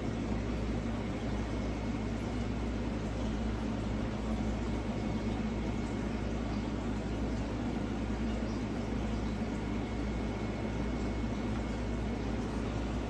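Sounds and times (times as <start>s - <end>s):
low even hum: 0.0s - 13.0s.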